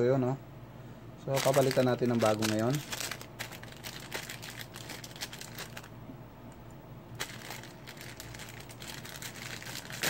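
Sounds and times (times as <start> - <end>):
plastic packet crinkling: 1.3 - 5.9, 7.2 - 10.0.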